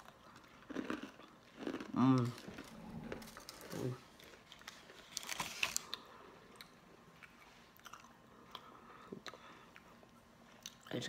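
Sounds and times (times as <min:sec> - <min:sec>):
cookie crunching: 0:00.0 - 0:08.7
soft chewing clicks: 0:05.8 - 0:11.0.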